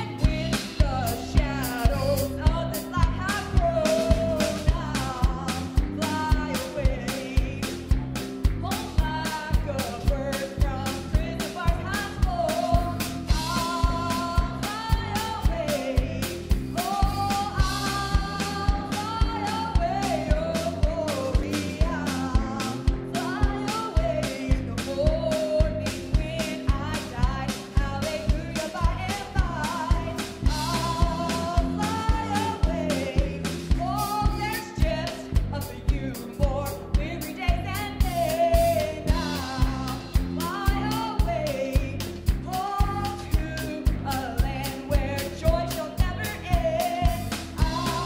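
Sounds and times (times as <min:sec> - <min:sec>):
drum kit beat: 0:00.0 - 0:48.0
electric bass: 0:00.0 - 0:48.0
piano: 0:00.0 - 0:48.0
woman singing: 0:00.0 - 0:48.0.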